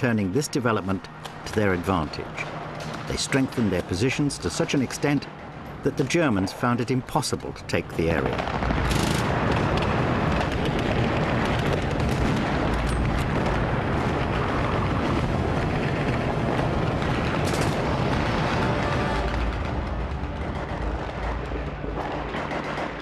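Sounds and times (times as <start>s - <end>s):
explosions rumbling: 8.1s - 23.0s
rapid gunshots: 8.4s - 14.9s, 20.2s - 23.0s.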